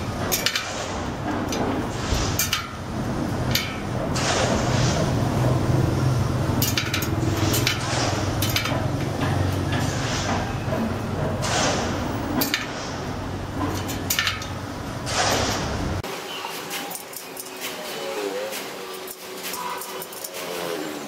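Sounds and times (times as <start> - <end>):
bicycle spokes clinking: 0.0 - 4.1, 5.4 - 10.0, 12.2 - 15.1, 16.6 - 21.0.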